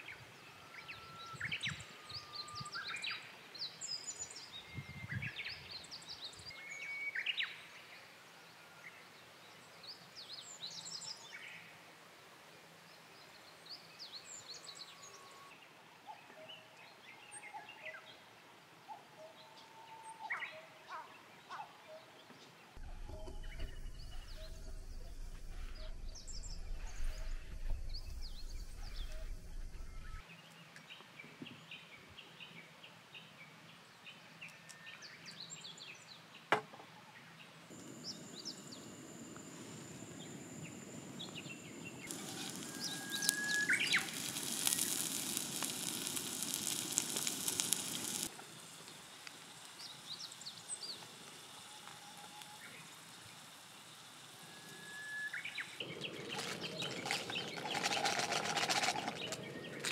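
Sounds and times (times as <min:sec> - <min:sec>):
birds chirping: 0:18.9 - 0:30.2, 0:37.7 - 0:59.9
low rumble: 0:22.8 - 0:30.2
food sizzling in a pan: 0:37.8 - 0:59.1.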